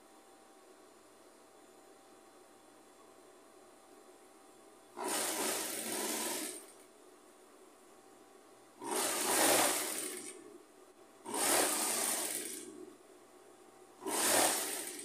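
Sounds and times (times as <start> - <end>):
sewing machine stitching: 5.0 - 6.8, 8.8 - 10.5, 11.2 - 12.8, 14.0 - 15.0.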